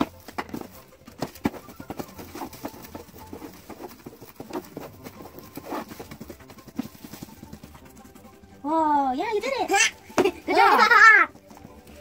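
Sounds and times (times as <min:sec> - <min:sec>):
hands patting plastic wrap: 0:00.0 - 0:08.0
plastic rustling: 0:00.0 - 0:08.2.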